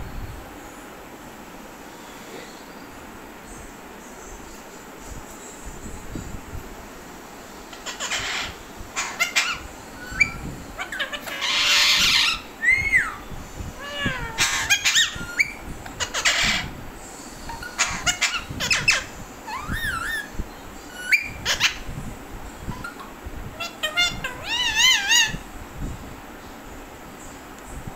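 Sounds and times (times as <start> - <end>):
parakeets squawking and chirping: 7.7 - 22.0, 22.6 - 25.4
parakeet harsh screech: 10.9 - 13.2.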